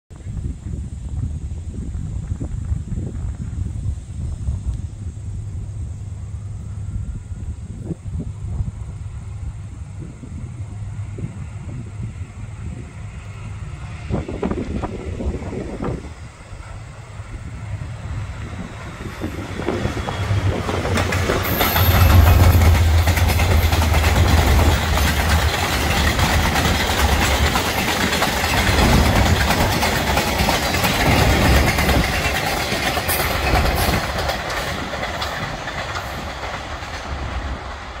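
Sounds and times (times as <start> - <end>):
diesel locomotive engine rumble: 0.1 - 38.0
train wheels clicking over rail joints: 15.8 - 38.0.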